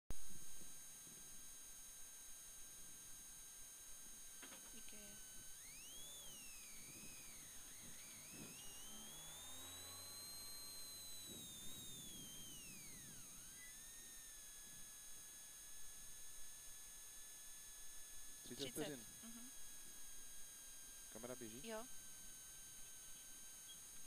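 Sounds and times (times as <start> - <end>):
steady high-pitched tones: 4.4 - 17.2, 17.9 - 24.0
gliding electronic whistling tones: 5.6 - 14.6, 22.8 - 24.0.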